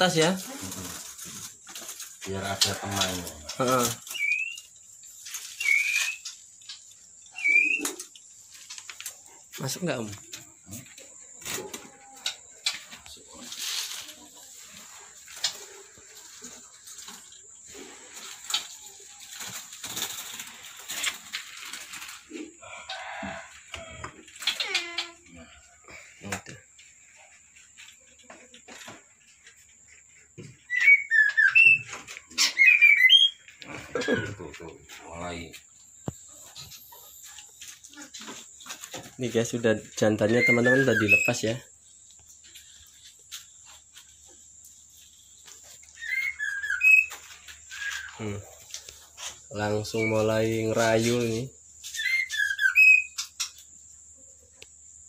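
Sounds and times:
bird fluttering wings: 18.0 - 22.3
wire birdcage rattling and scraping: 18.0 - 25.0
short squeaky bird call: 30.7 - 33.5, 46.0 - 47.1.

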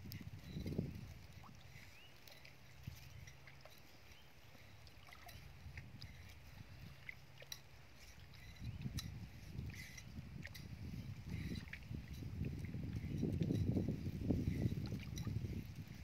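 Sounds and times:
shallow water sloshing: 0.0 - 16.0.

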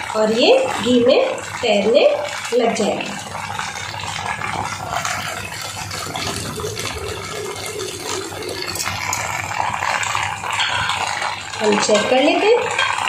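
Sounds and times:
batter sizzling in hot oil: 0.0 - 13.0.

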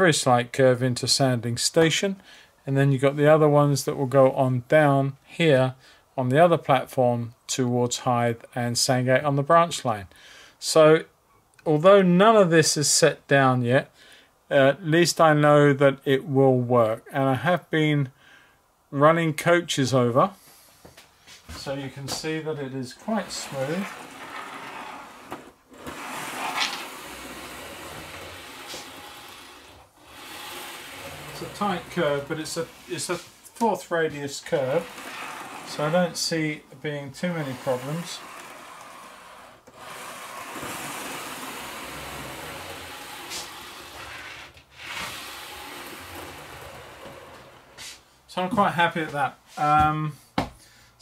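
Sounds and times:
model train coaches rolling: 23.0 - 36.3, 37.3 - 47.9.

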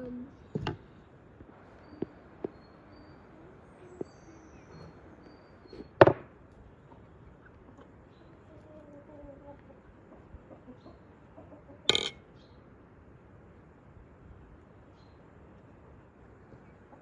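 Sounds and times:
faint high chirps: 1.5 - 6.0
metal spoon clinking enamel bowl: 11.9 - 12.2.

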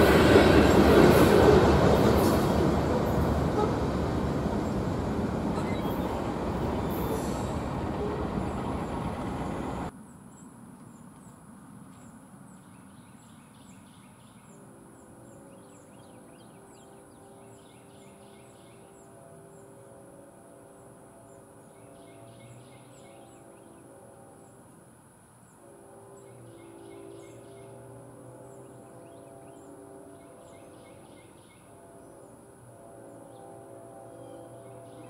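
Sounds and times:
freight train rolling past: 0.0 - 9.9.

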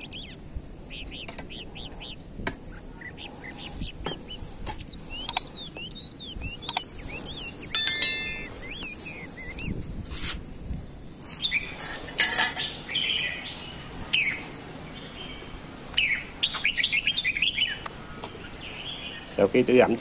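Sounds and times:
small birds chirping: 3.0 - 9.7
metallic clink: 7.8 - 8.6.

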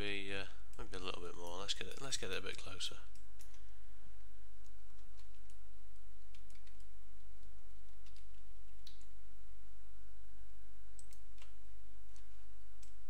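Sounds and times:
steady low hum: 0.0 - 13.0
keyboard and mouse clicks: 4.6 - 9.2, 11.0 - 13.0.

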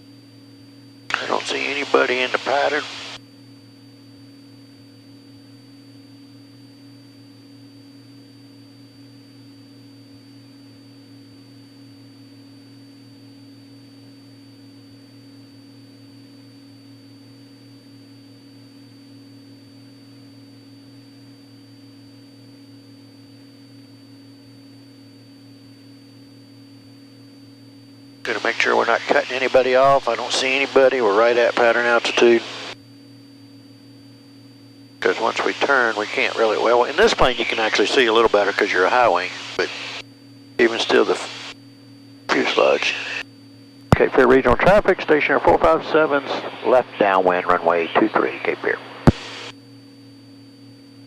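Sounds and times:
faint high whine: 0.0 - 51.0
aircraft engine drone: 1.1 - 3.2, 28.2 - 32.8, 35.0 - 41.6, 42.3 - 43.3, 43.9 - 49.5.

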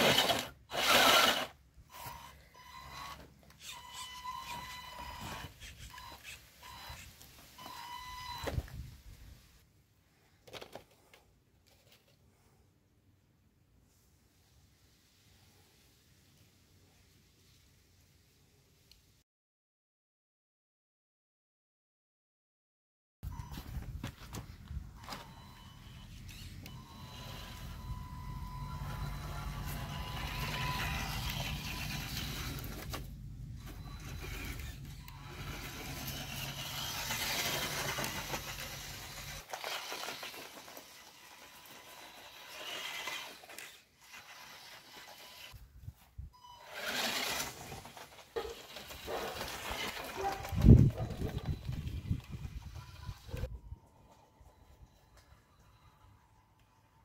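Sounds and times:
toy car motor whirring: 0.0 - 8.6, 25.7 - 45.6, 46.5 - 53.5.

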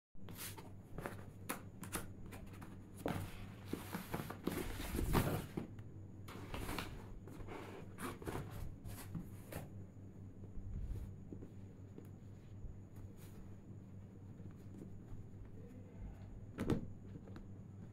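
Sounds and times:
cardboard rustling and scraping: 0.3 - 5.7, 6.3 - 9.8.

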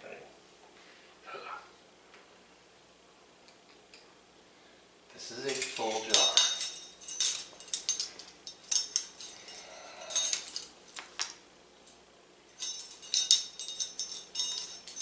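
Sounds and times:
metal measuring spoons jangling: 5.4 - 10.7, 12.5 - 15.0.

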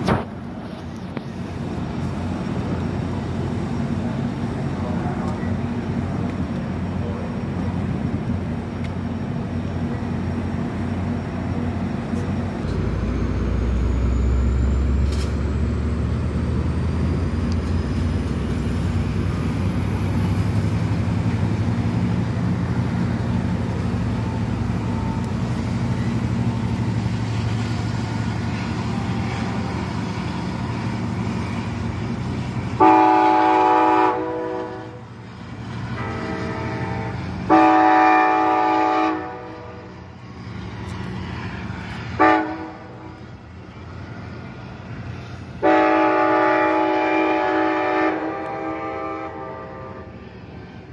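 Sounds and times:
diesel locomotive rumbling: 0.0 - 50.9
train horn chord: 32.8 - 35.1, 35.9 - 39.9, 42.2 - 43.1, 45.6 - 50.2.

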